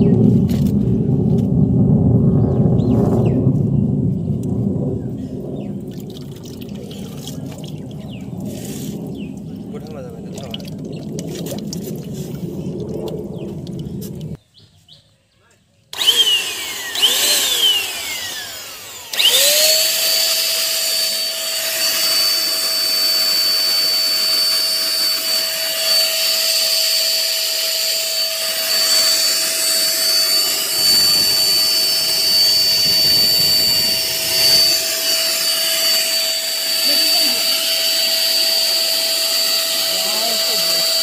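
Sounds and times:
electric hand blower running: 16.0s - 41.0s.

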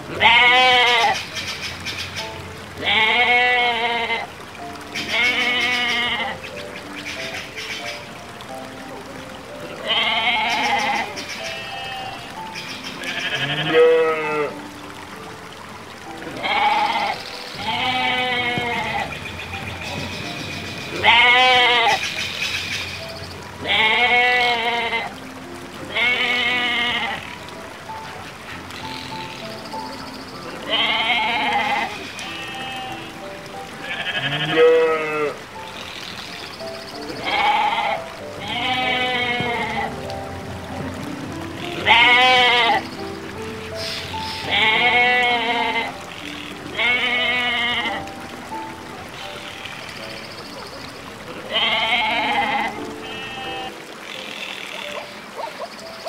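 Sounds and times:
soft background music: 0.0s - 56.0s
sheep bleating: 0.2s - 1.2s, 2.8s - 4.3s, 9.8s - 12.1s, 13.1s - 14.6s, 21.0s - 22.0s, 23.6s - 25.1s, 30.7s - 33.0s, 33.8s - 35.4s, 37.2s - 39.9s, 41.6s - 42.8s, 44.4s - 46.0s, 46.7s - 48.0s, 51.5s - 53.8s.

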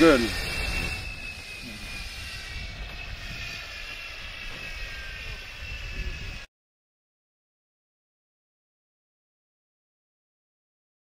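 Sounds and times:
model aircraft engine whine: 0.0s - 6.5s.

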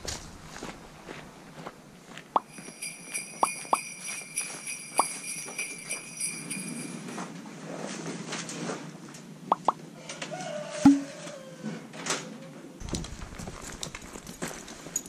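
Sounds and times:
jingle bells shaking: 2.4s - 7.2s.

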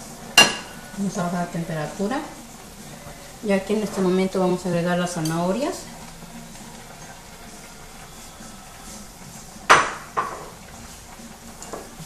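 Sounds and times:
simmering pan hiss: 0.0s - 12.0s
plate knocking metal pot: 9.7s - 10.5s.

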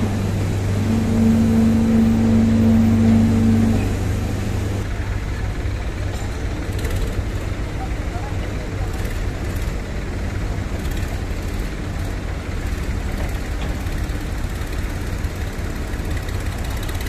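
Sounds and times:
tractor diesel engine rumble: 0.0s - 17.0s.

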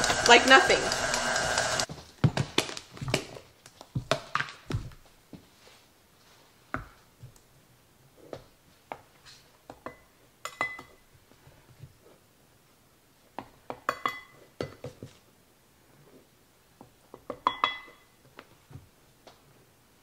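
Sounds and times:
metal bowl ringing clink: 17.4s - 18.1s.

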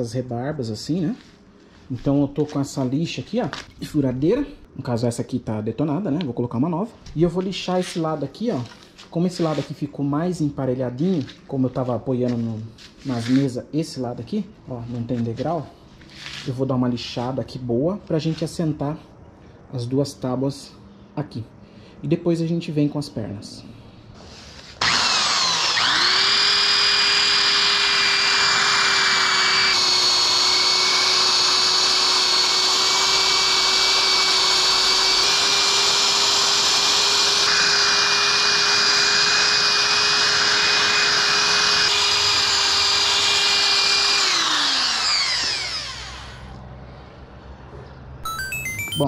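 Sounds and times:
electric drill motor whine: 24.8s - 46.6s.

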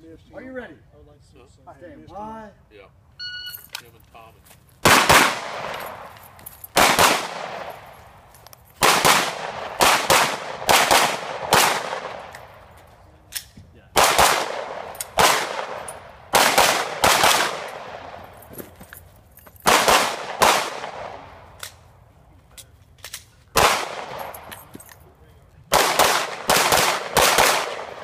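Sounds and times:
pistol shots echoing: 4.8s - 7.9s, 8.8s - 12.7s, 14.0s - 18.3s, 19.6s - 21.7s, 23.5s - 24.6s, 25.7s - 28.0s.

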